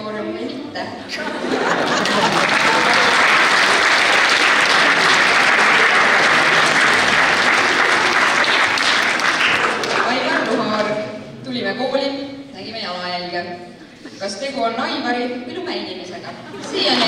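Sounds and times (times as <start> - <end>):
children applauding: 1.8 - 10.6.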